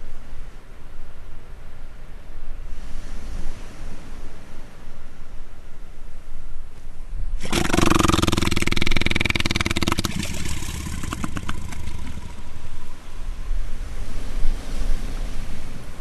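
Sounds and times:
elephant seal calling: 0:07.4 - 0:13.5
waves washing on shore: 0:07.4 - 0:16.0.

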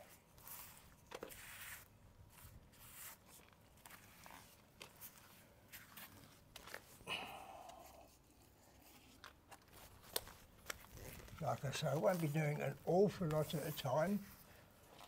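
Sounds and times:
grout float scraping tiles: 0:00.4 - 0:03.4.

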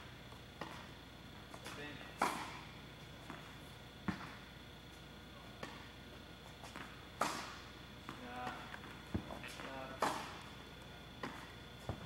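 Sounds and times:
tennis ball hits: 0:02.2 - 0:02.6.

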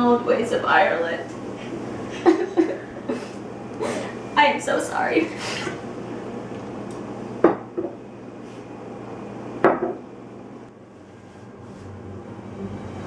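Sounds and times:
glassware knocking on wooden table: 0:07.4 - 0:08.0, 0:09.6 - 0:10.0.

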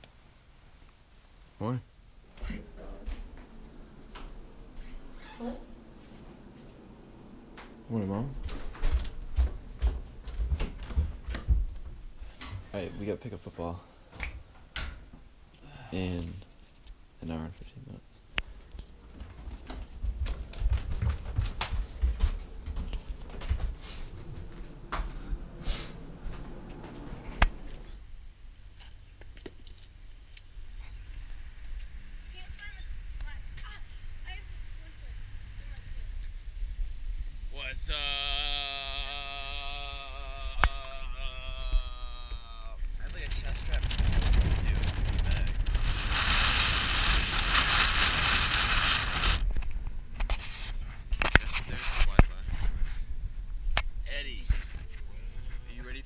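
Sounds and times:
footsteps: 0:02.2 - 0:13.2, 0:18.4 - 0:28.0
road noise: 0:21.9 - 0:28.0
handling noise with clicks: 0:28.8 - 0:30.5
wind rushing over camera: 0:40.0 - 0:55.1.

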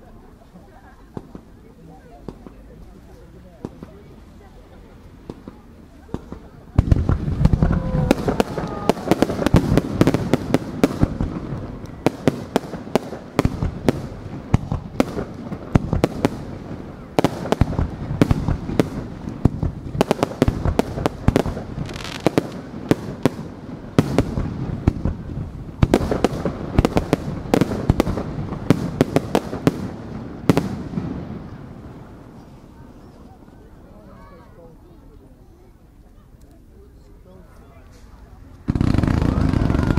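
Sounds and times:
fireworks cracking and banging: 0:01.0 - 0:04.4, 0:05.0 - 0:32.4, 0:37.9 - 0:39.9
firework whistle: 0:39.0 - 0:39.9.

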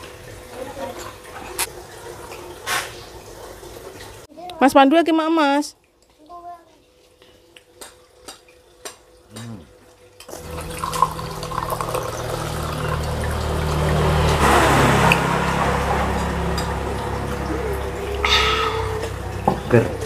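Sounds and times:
drink pouring into a glass mug: 0:10.3 - 0:17.2.

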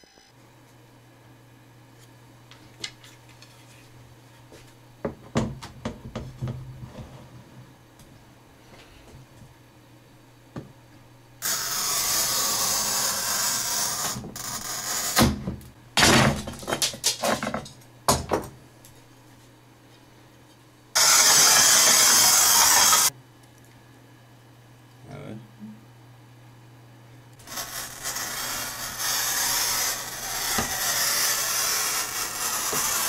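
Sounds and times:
tile cutter scratching along tile: 0:11.4 - 0:15.2, 0:21.0 - 0:23.1, 0:27.4 - 0:33.0.

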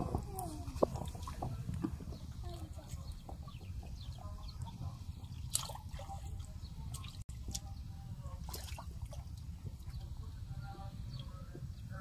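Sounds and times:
hands splashing in shallow water: 0:05.4 - 0:07.7.

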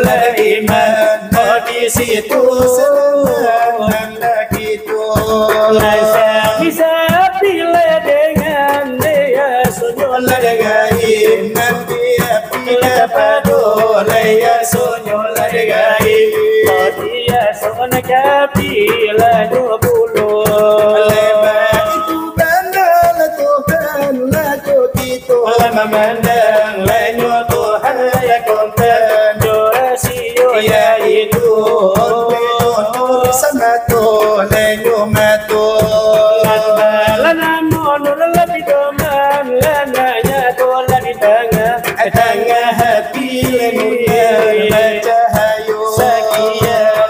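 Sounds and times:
brass trays beaten rhythmically: 0:00.0 - 0:47.0
men chanting devotional song: 0:00.0 - 0:47.0.

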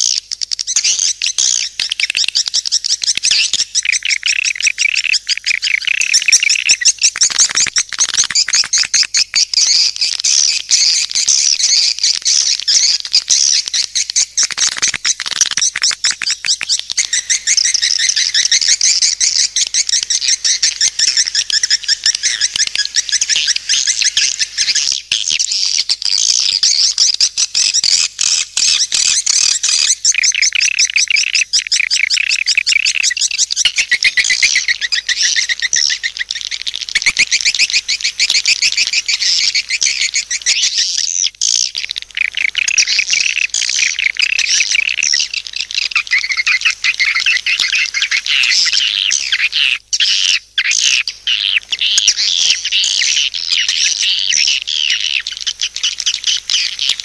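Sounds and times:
rapid high bird chirps: 0:00.0 - 0:57.0.

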